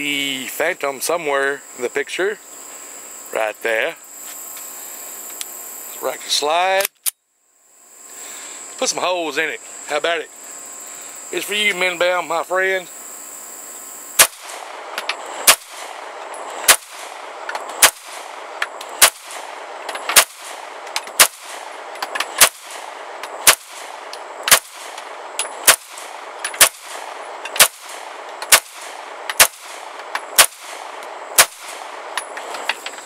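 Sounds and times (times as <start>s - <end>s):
pistol shots: 14.2s - 32.4s.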